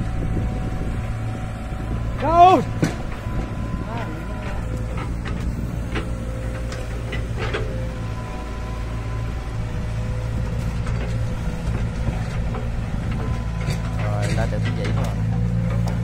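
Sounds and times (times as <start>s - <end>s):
thin steady whine: 0.0s - 10.8s
excavator diesel engine running: 0.0s - 16.0s.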